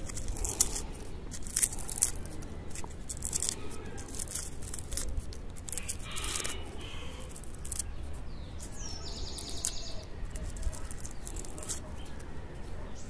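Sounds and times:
dry leaves crackling as peeled: 0:00.0 - 0:12.6.

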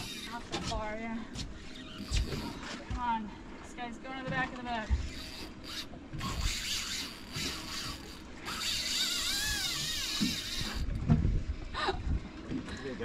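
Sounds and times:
fishing reel ratcheting buzz: 0:00.0 - 0:00.5, 0:01.8 - 0:02.8, 0:05.0 - 0:11.0.

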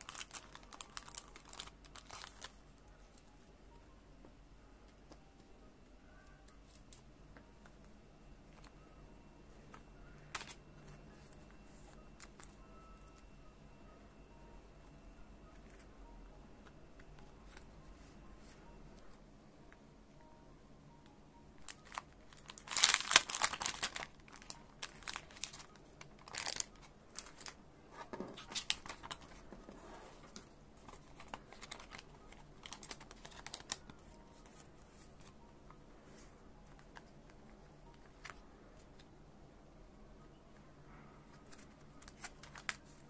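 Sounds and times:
plastic sleeves crinkling: 0:00.0 - 0:03.2, 0:21.6 - 0:27.6, 0:28.3 - 0:29.6, 0:30.2 - 0:35.3, 0:41.3 - 0:43.0.

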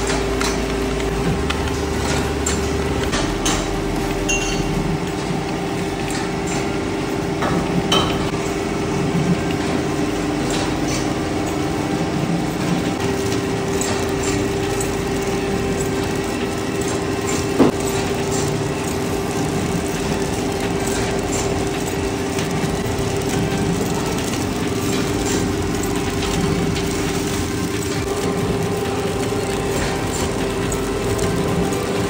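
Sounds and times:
steady machine hum: 0:00.0 - 0:32.0
metallic clinks and clicks: 0:04.2 - 0:04.9.

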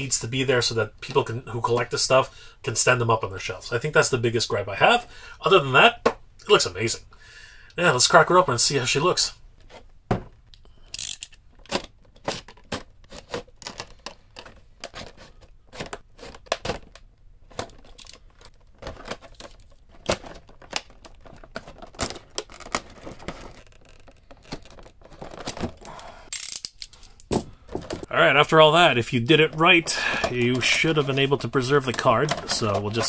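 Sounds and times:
plastic rustle: 0:12.0 - 0:25.9.

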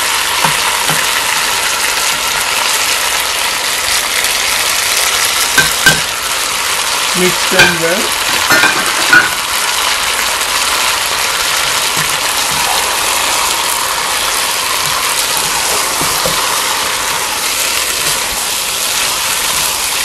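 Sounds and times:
chicken sizzling in a pot: 0:00.0 - 0:20.0
spatula knocking on pot: 0:00.4 - 0:01.2, 0:05.6 - 0:06.1, 0:14.8 - 0:16.6
wooden spatula stirring and scraping: 0:13.6 - 0:20.0.

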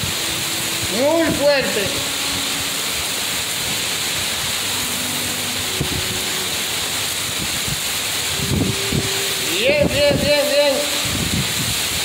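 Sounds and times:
driving rain: 0:00.0 - 0:12.0
hurricane wind: 0:00.0 - 0:12.0.

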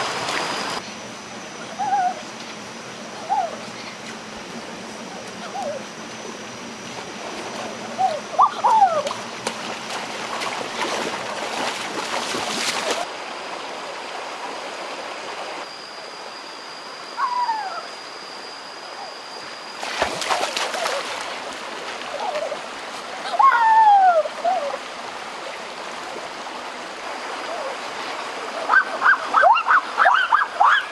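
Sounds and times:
thin high whine: 0:00.0 - 0:23.9
water splashing: 0:06.9 - 0:13.1, 0:19.8 - 0:23.3
stream running over rocks: 0:08.4 - 0:15.6, 0:24.2 - 0:30.0
rising-and-falling calls: 0:17.1 - 0:18.0.

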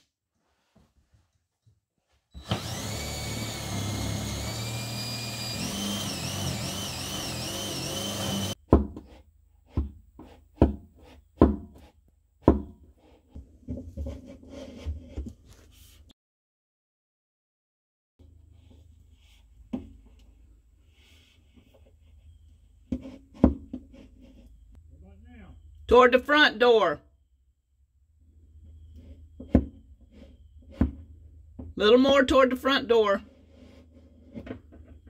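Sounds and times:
power drill boring into wood: 0:02.4 - 0:08.6.

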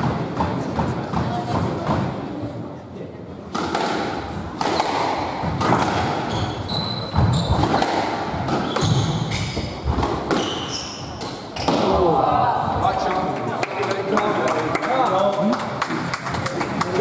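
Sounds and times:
squash ball striking rackets and walls: 0:00.0 - 0:02.3, 0:03.5 - 0:12.2
shoes squeaking on wooden floor: 0:06.0 - 0:07.8, 0:08.4 - 0:11.8.

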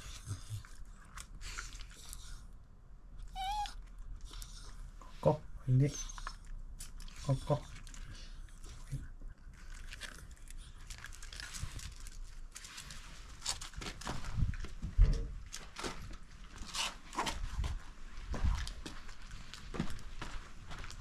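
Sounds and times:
dog crunching a treat: 0:00.0 - 0:02.5, 0:06.0 - 0:14.8.

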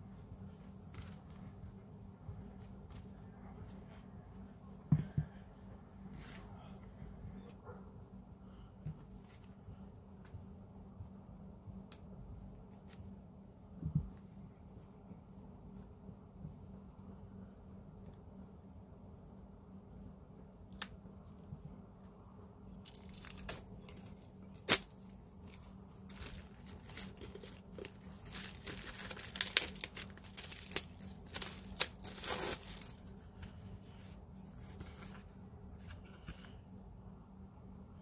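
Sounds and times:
plastic wrap crinkling and tearing: 0:22.8 - 0:33.1.

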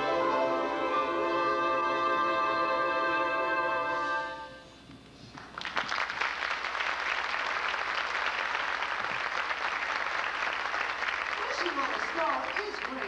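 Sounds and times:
big band held chord: 0:00.0 - 0:04.7
audience applause: 0:05.3 - 0:13.0.

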